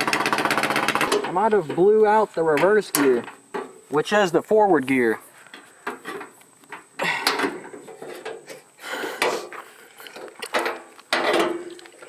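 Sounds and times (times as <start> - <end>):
metallic clunks and rattles: 0.0 - 1.9, 10.2 - 11.8.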